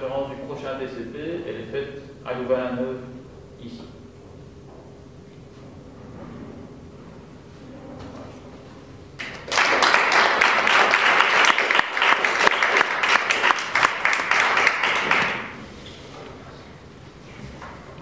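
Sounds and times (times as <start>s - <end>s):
audience applauding: 9.2s - 15.6s.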